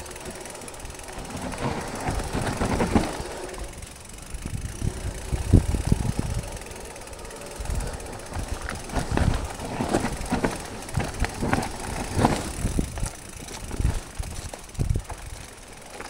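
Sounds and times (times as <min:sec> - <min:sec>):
bike frame knocks and rattles: 0:00.0 - 0:16.0
tyre noise on dirt trail: 0:00.0 - 0:16.0.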